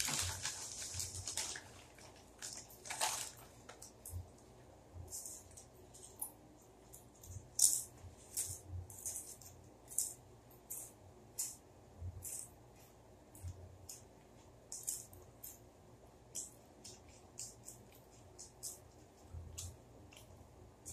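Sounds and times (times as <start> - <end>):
potato chips crunching: 0.0 - 4.1.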